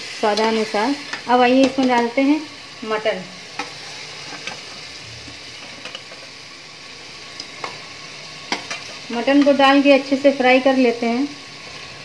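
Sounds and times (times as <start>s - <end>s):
paste sizzling in hot oil: 0.0s - 12.0s
metal spatula clicks on pot: 8.5s - 9.6s.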